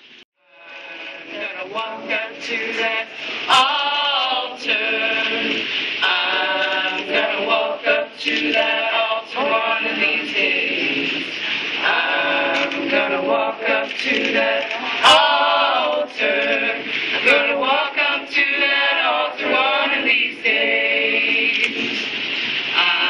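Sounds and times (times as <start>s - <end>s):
crowd singing unaccompanied: 0.4s - 23.0s.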